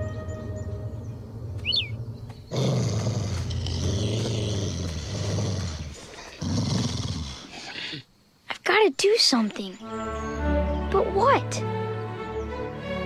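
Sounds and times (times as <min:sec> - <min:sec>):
cartoon wolf growling: 0:02.5 - 0:08.0.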